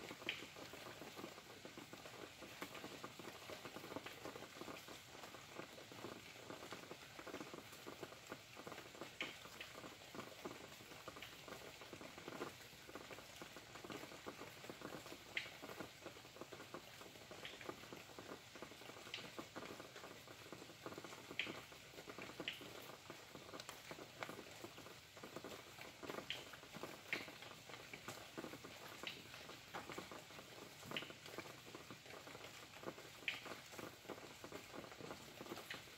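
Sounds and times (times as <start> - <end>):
faint rain pattering: 0.0 - 35.9
sharp drip taps: 0.1 - 35.9.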